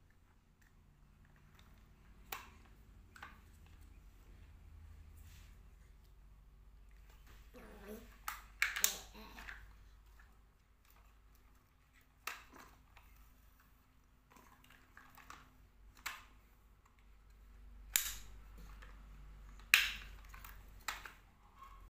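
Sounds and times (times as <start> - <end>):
plastic toy clacking on tile floor: 8.2 - 11.2, 17.9 - 18.9, 19.6 - 21.2.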